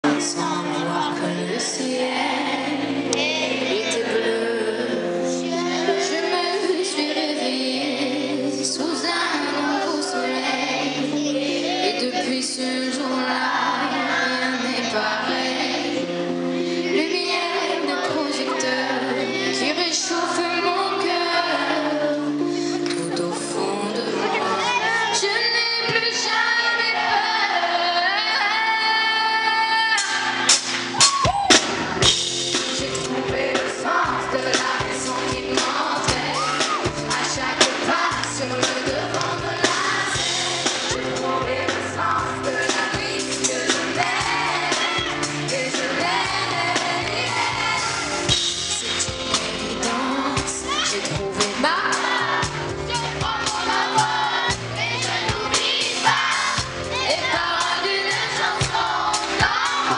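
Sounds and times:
woman singing: 0:00.0 - 0:15.8, 0:16.8 - 0:30.2, 0:32.6 - 0:47.4, 0:48.8 - 0:52.5, 0:57.1 - 0:59.8
keyboard chords: 0:00.0 - 0:59.9
band playing: 0:29.4 - 0:59.9.

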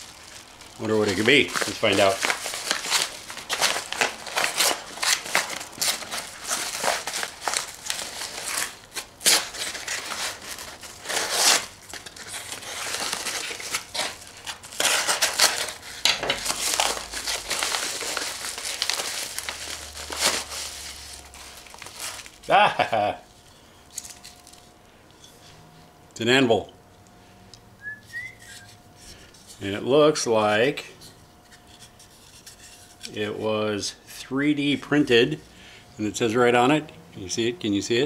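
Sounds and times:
envelope tearing: 0:00.0 - 0:23.1
paper envelope crinkling: 0:00.0 - 0:24.7.

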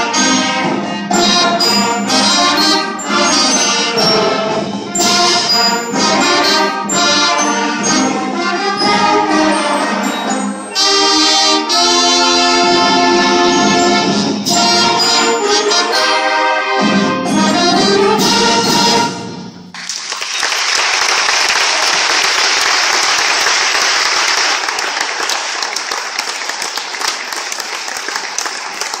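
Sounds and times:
concert band chords: 0:00.0 - 0:19.8
audience applause: 0:19.8 - 0:29.0.

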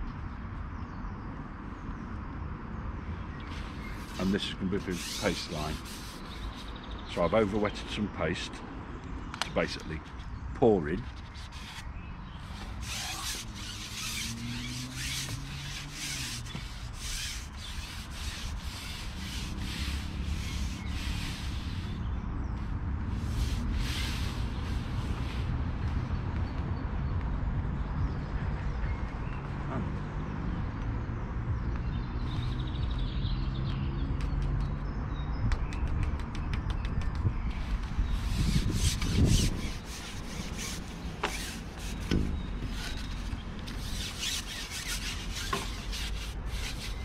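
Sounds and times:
fishing pole rubbing swish: 0:03.5 - 0:06.8, 0:11.1 - 0:22.0, 0:23.1 - 0:25.6, 0:37.5 - 0:47.0.

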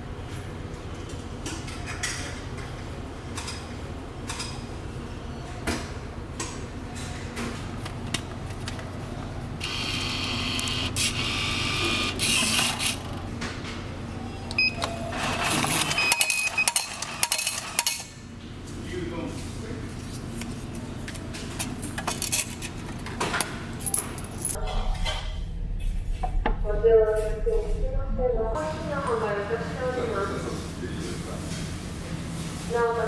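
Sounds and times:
vending machine feed mechanism: 0:09.6 - 0:13.2, 0:14.8 - 0:18.1
ticket printing clatter: 0:14.8 - 0:18.1.

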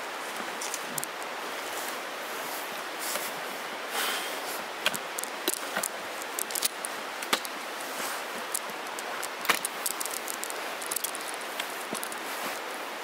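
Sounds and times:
outdoor rustling hiss: 0:00.0 - 0:13.0
sharp clicks and light knocks: 0:04.8 - 0:07.6, 0:08.4 - 0:12.2.

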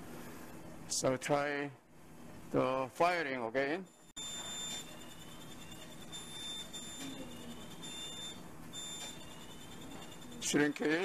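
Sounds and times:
high-pitched beep pulses: 0:04.0 - 0:11.0.

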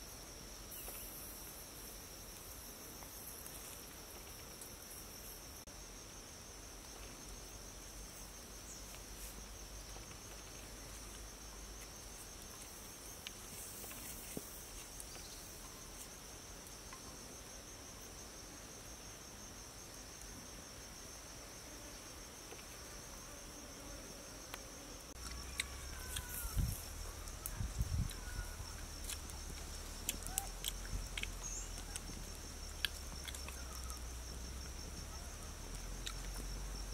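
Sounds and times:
insects chirring in high trill: 0:22.1 - 0:36.9.

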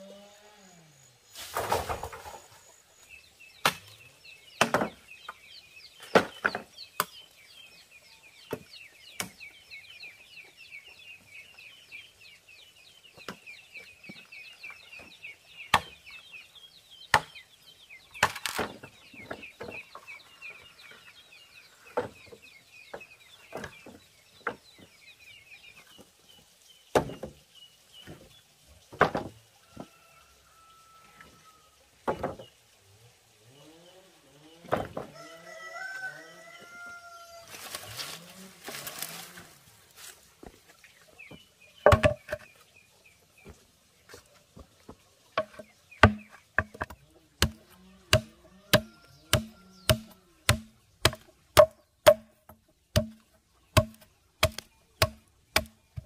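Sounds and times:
sharp knocks: 0:41.9 - 0:42.5, 0:45.4 - 0:53.2.

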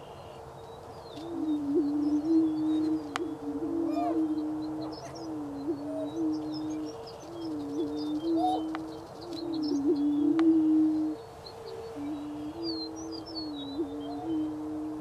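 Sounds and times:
prairie chickens booming: 0:00.0 - 0:15.0
short rising bird calls: 0:01.4 - 0:10.7.

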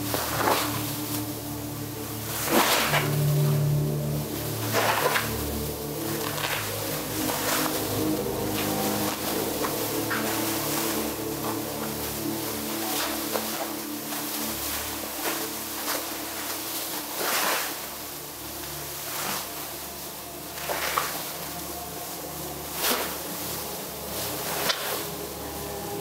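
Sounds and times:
faint low drone: 0:00.0 - 0:26.0
sheet whooshing through air: 0:00.0 - 0:26.0.

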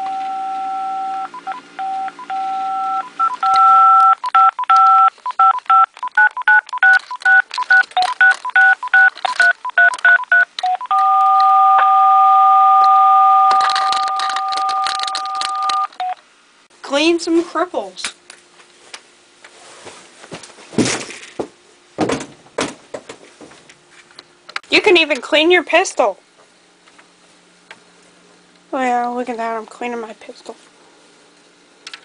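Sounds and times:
telephone keypad tones: 0:00.0 - 0:16.2.

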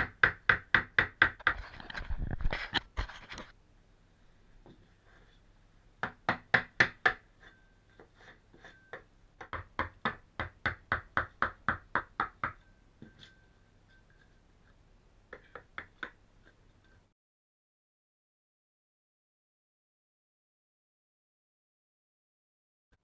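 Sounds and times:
hammer striking chisel: 0:00.0 - 0:01.6, 0:06.0 - 0:13.4.

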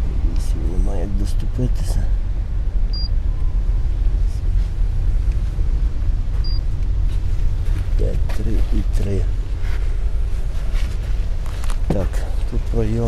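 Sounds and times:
steady low rumble: 0:00.0 - 0:13.0
short high beeps: 0:02.9 - 0:03.1, 0:06.4 - 0:06.6.

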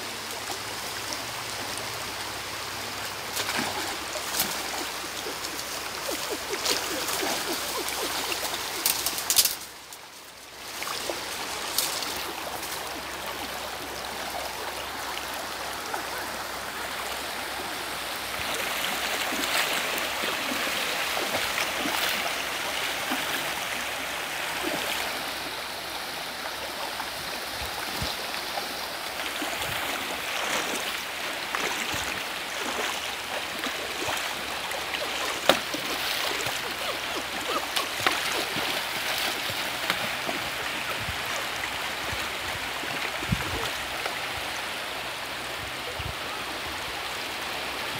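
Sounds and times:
river water over stones: 0:00.0 - 0:47.9
splashes from wading: 0:03.3 - 0:09.6, 0:29.6 - 0:41.0.

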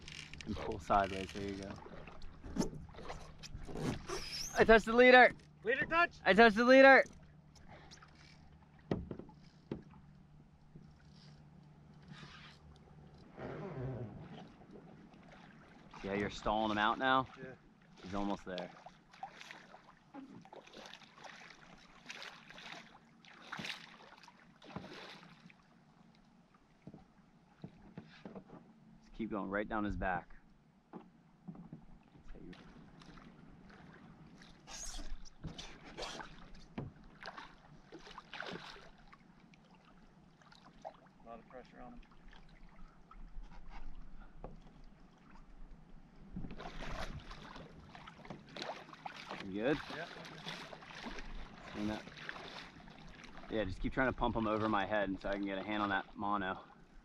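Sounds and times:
water lapping against paddleboard: 0:00.0 - 0:28.8, 0:31.0 - 0:57.0
fish splashing at water surface: 0:37.2 - 0:39.2.

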